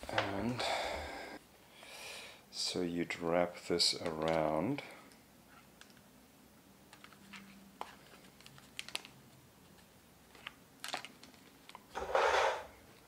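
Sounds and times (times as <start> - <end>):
cable handling clicks and taps: 3.9 - 5.2, 5.8 - 6.1, 6.9 - 9.1.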